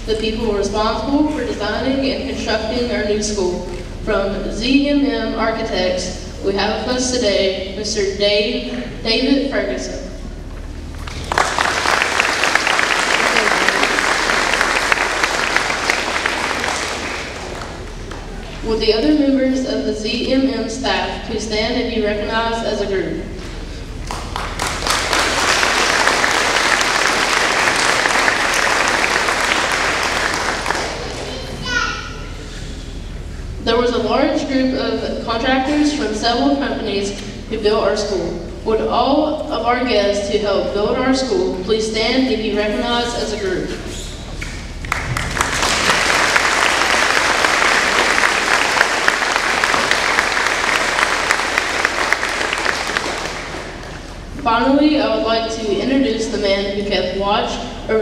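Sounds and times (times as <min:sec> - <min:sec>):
audience applauding: 0:11.0 - 0:18.6, 0:24.0 - 0:31.6, 0:44.8 - 0:54.2.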